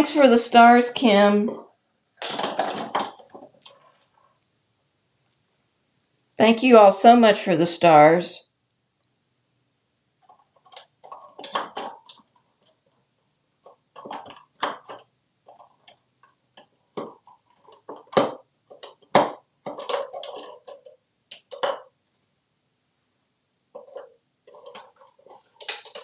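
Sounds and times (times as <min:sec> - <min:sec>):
plastic toys clattering on countertop: 0:01.4 - 0:03.9, 0:10.2 - 0:12.8, 0:13.6 - 0:22.0, 0:23.7 - 0:26.0.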